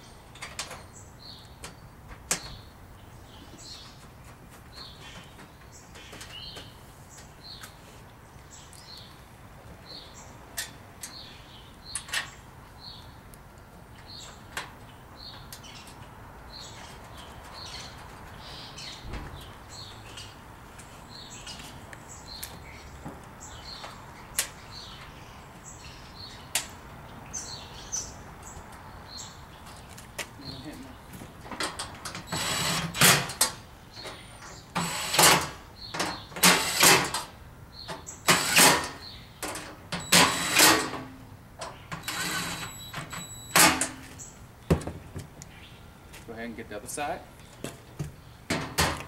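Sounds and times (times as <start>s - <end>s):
bird chirping: 13.9s - 31.2s.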